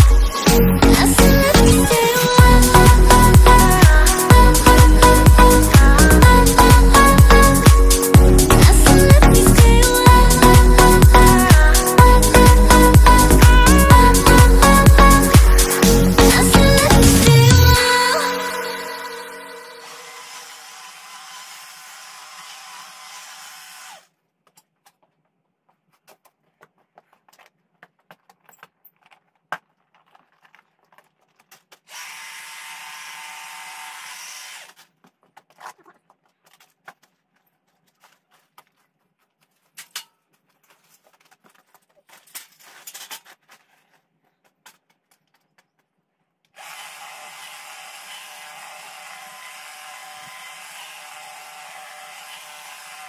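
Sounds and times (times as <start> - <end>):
hedge trimmer running: 0.6 - 18.8, 19.6 - 24.1, 31.9 - 34.8, 46.6 - 53.0.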